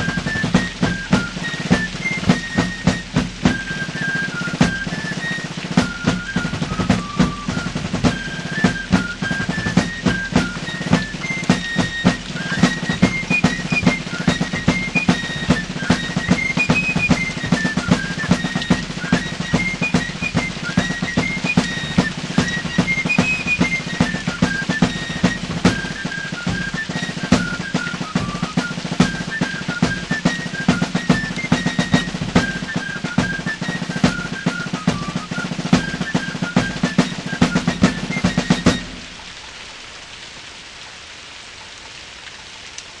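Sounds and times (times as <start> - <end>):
high piping melody: 0.0 - 39.2
snare drumming: 0.0 - 39.2
faint hiss: 0.0 - 43.0.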